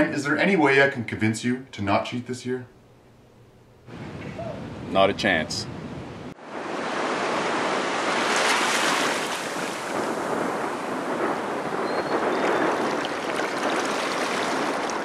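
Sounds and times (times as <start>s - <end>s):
surf washing over a sandy beach: 6.4s - 15.0s.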